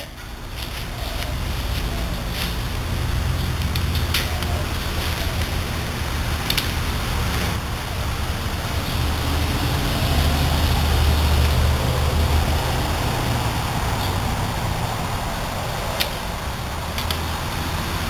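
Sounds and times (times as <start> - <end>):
low rumble with hiss: 0.0 - 18.0
plastic clips snapping onto poles: 6.4 - 6.8, 16.9 - 17.2.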